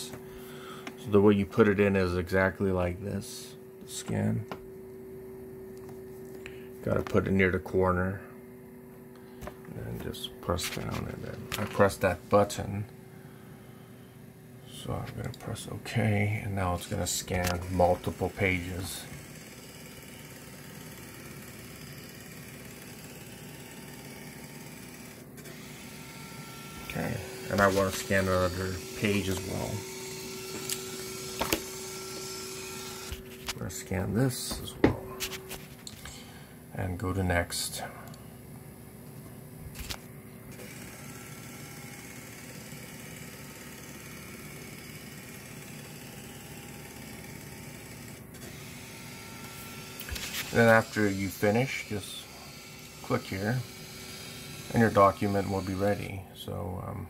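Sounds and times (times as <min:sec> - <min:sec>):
scanner carriage motor running: 0:16.9 - 0:33.5, 0:39.8 - 0:56.0.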